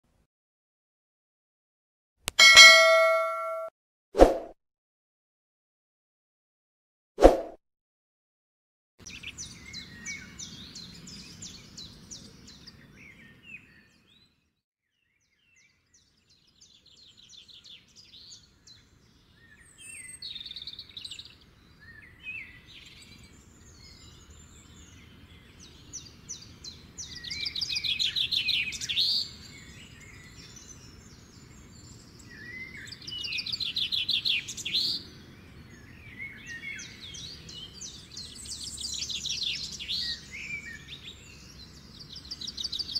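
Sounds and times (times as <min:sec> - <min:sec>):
songbirds chirping and trilling: 0:09.0 - 0:14.4, 0:15.0 - 0:42.9.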